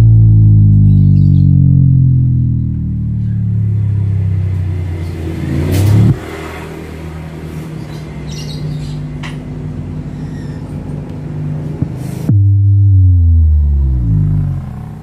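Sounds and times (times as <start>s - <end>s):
subwoofers playing deep bass: 0.0s - 6.2s, 11.7s - 15.0s.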